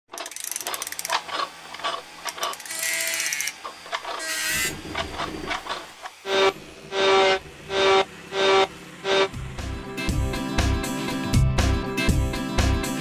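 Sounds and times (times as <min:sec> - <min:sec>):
ratchet-like clicks: 0:00.1 - 0:05.8
mechanical whirring slides: 0:00.2 - 0:09.4.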